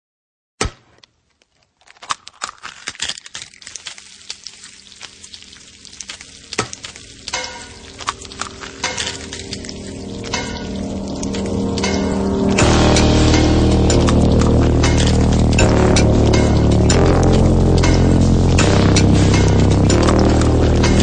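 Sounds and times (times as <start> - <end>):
food sizzling: 2.9 - 21.0
music with held notes: 7.7 - 21.0.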